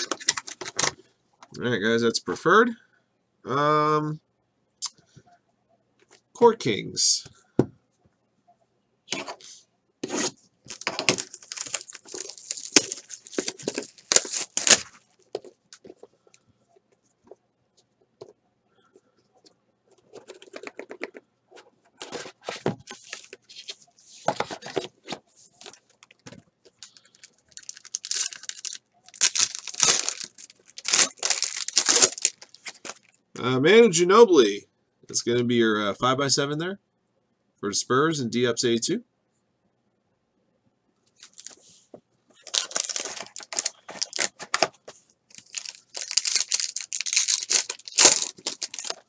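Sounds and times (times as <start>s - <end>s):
cardboard tearing: 10.0s - 15.0s, 27.6s - 33.0s, 42.4s - 44.7s, 45.4s - 49.0s
foil pack crinkling: 10.7s - 16.3s, 25.6s - 33.2s, 41.2s - 41.6s, 42.4s - 49.0s.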